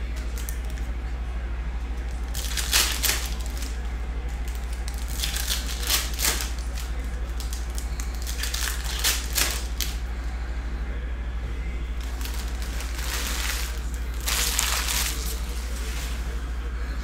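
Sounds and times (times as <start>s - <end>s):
foil wrappers crinkling: 0.0s - 0.9s, 2.0s - 10.1s, 11.9s - 16.5s
steady low hum: 0.0s - 17.0s.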